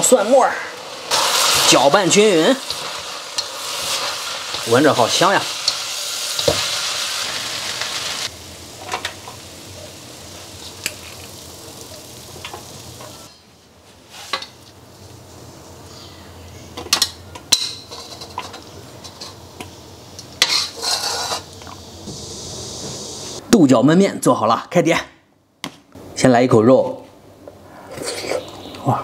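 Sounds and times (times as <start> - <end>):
noodles sizzling in a wok: 0.0 - 16.1, 17.5 - 23.4
spatula scraping a wok: 20.4 - 21.6.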